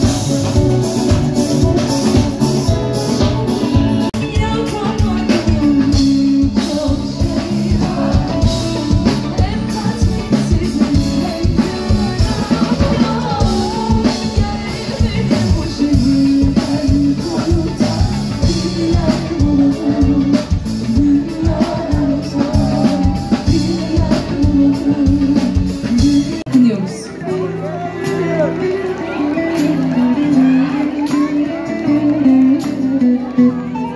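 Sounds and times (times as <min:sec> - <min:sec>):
drum kit steady beat: 0:00.0 - 0:26.7
guitars: 0:00.0 - 0:33.9
woman singing lead: 0:00.0 - 0:33.9.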